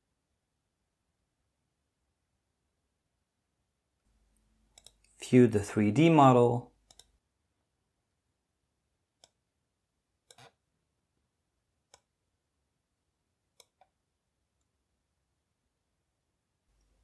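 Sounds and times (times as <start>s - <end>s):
computer mouse clicks: 4.7s - 5.2s, 6.8s - 7.2s, 9.2s - 9.4s, 10.2s - 10.6s, 11.9s - 12.1s, 13.5s - 14.0s.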